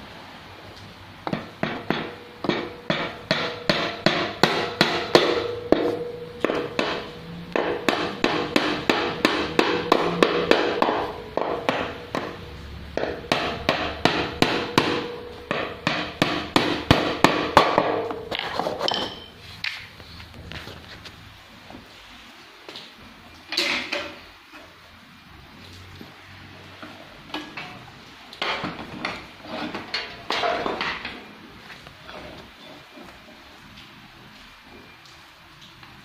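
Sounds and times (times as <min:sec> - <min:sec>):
hammer striking metal: 0:01.3 - 0:12.4, 0:13.0 - 0:19.3.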